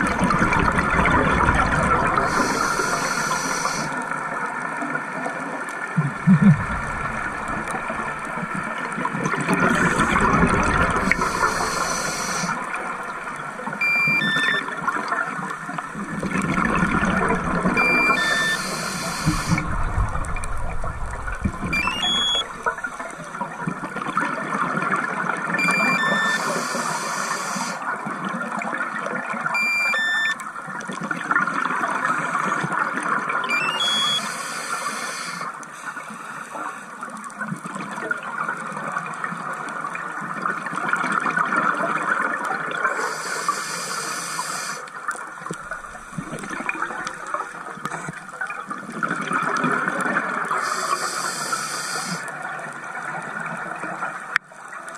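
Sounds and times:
exhaled air bubbling: 0.0s - 4.0s, 5.8s - 15.0s, 15.8s - 25.2s, 45.1s - 50.8s
regulator breath hiss: 2.2s - 4.0s, 11.0s - 12.6s, 18.2s - 19.7s, 26.4s - 27.8s, 34.2s - 36.9s, 43.0s - 44.9s, 50.6s - 52.3s.

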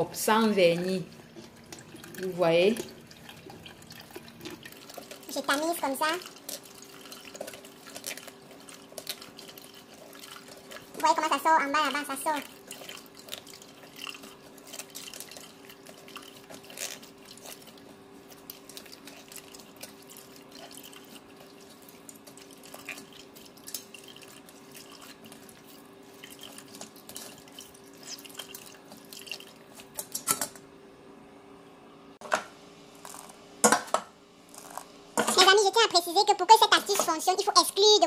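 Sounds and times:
juice dripping through sieve: 0.0s - 30.3s
small wet crackles: 0.2s - 30.2s.

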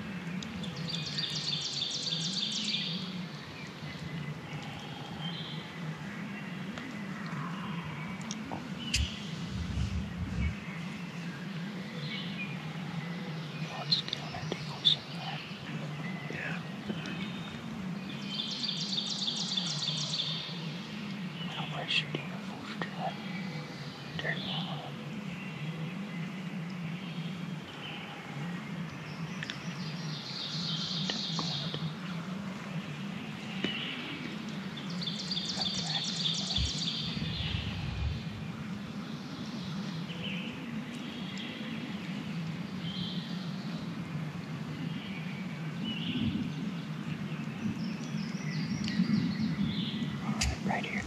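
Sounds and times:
low background noise: 0.0s - 51.0s
songbirds singing: 0.0s - 51.0s
low rumble: 7.0s - 11.8s, 35.5s - 39.2s.

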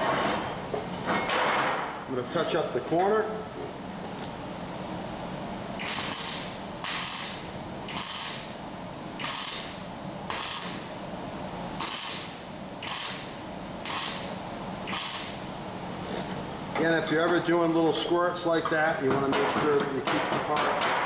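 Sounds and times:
arc welder crackling hiss: 5.8s - 8.5s, 9.2s - 9.7s, 10.3s - 10.9s, 11.8s - 15.6s.

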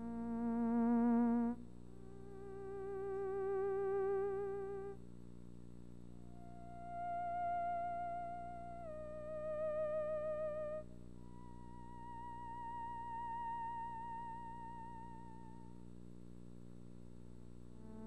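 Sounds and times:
theremin notes with vibrato: 6.2s - 15.7s.

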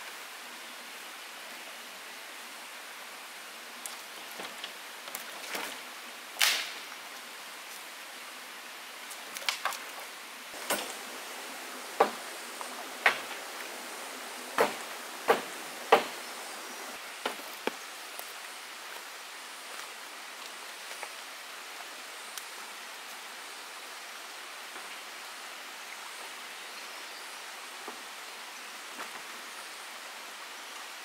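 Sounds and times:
steady hiss: 0.0s - 31.0s
short sharp knocks: 11.9s - 13.6s, 14.5s - 16.4s.

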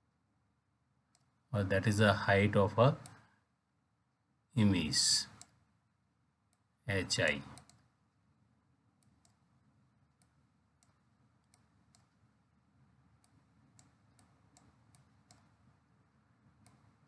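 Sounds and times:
faint low hum: 0.0s - 17.0s
faint clicks: 3.0s - 3.3s, 7.5s - 7.9s, 9.0s - 9.4s, 13.2s - 15.6s, 16.6s - 17.0s.

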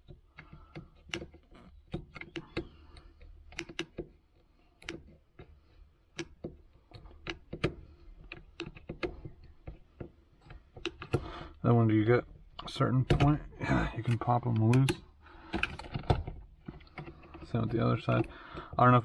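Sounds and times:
plastic clicks and taps: 6.1s - 11.3s.

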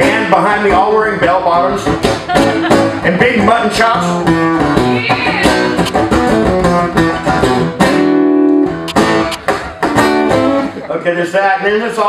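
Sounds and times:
acoustic guitar lead line: 0.0s - 12.0s.

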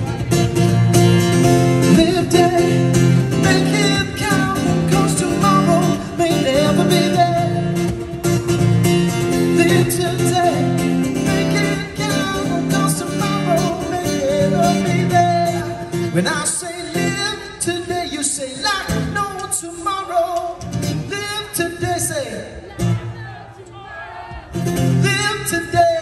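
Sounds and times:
drums: 0.0s - 16.1s, 18.9s - 21.2s
acoustic guitar: 0.0s - 23.2s, 24.4s - 26.0s
person singing: 1.9s - 7.8s, 9.4s - 20.6s.

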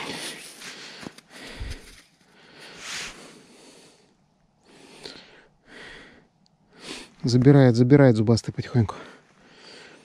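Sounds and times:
person breathing and sniffing: 0.0s - 6.2s.

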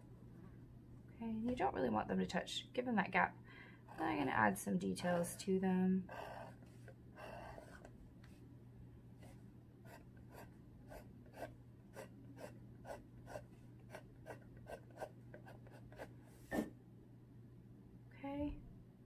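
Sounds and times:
pencil strokes on canvas: 6.1s - 7.9s.

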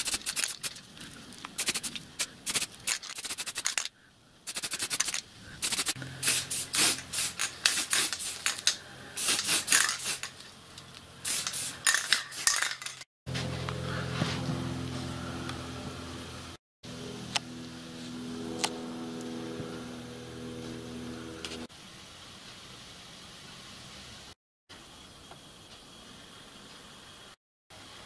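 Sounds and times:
spray can ball rattling: 0.0s - 0.9s, 1.5s - 3.9s, 4.5s - 10.6s, 11.2s - 13.1s
spray paint hissing: 0.0s - 0.9s, 1.5s - 10.6s, 11.2s - 13.0s.

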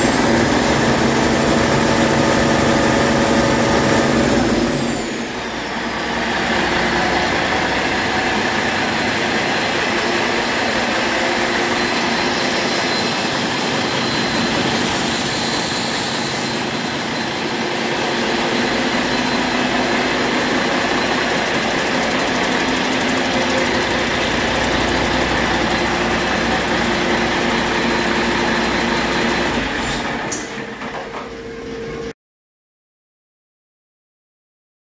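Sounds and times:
diesel engine running: 0.0s - 30.8s.

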